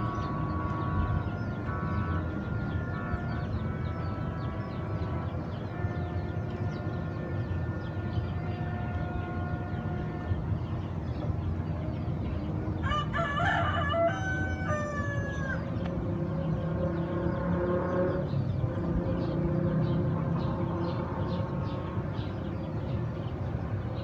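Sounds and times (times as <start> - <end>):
rooster crowing: 12.8 - 15.7.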